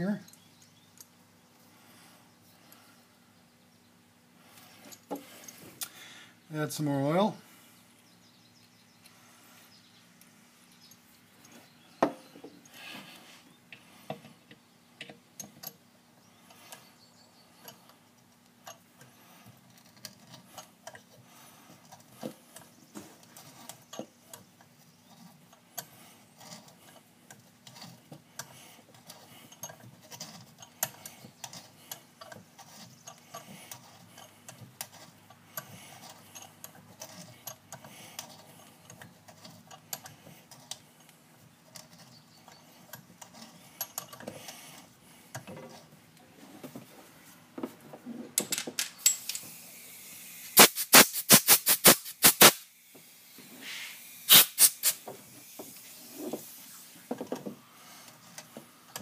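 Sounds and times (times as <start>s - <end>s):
hand tool clicks and scrapes: 17.6s - 45.9s, 48.4s - 52.7s, 53.7s - 59.0s
loud sharp ratchet clicks: 50.4s - 52.7s, 54.2s - 55.0s.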